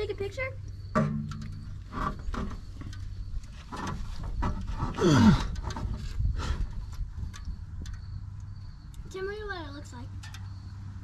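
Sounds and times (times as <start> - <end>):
knocks and scrapes: 0.9 - 8.1.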